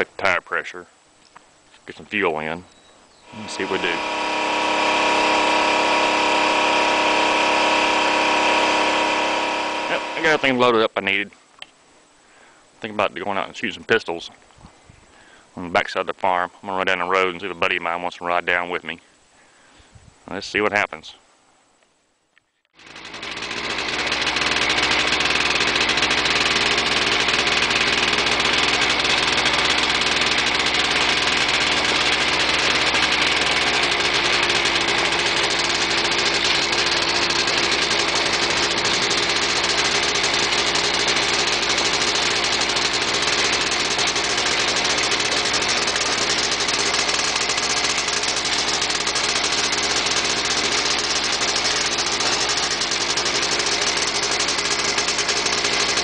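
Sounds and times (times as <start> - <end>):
quad bike engine running: 3.3 - 10.6, 22.8 - 56.0.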